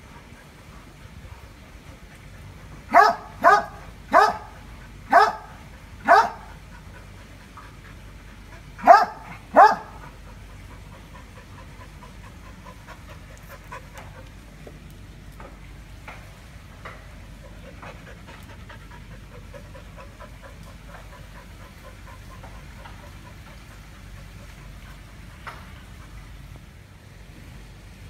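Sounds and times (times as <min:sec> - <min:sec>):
dog panting: 0:00.0 - 0:14.6, 0:16.9 - 0:26.7
dog barking: 0:02.9 - 0:06.5, 0:08.8 - 0:10.0.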